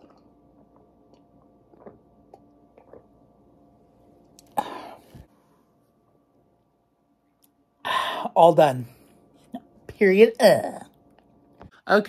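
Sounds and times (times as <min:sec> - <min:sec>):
man swallowing water: 0:00.0 - 0:03.2
breathy gasp: 0:04.6 - 0:05.2, 0:07.8 - 0:08.3.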